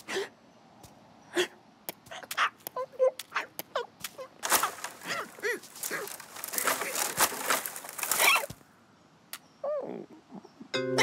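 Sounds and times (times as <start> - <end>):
rustling and clattering effects: 4.4 - 8.6.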